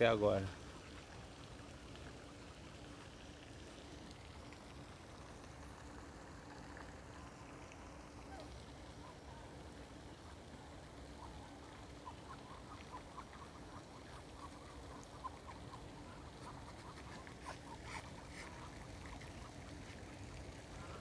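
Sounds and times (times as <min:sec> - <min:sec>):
ducks calling: 0:11.1 - 0:20.0.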